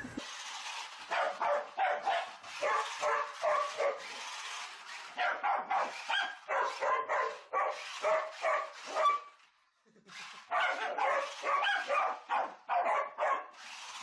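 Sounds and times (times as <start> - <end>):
dog barking: 1.1 - 4.1, 5.2 - 9.3, 10.5 - 13.6.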